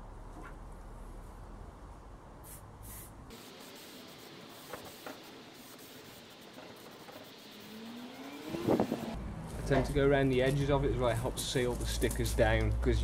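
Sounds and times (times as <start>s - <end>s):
aerosol can spraying hiss: 2.4s - 9.0s.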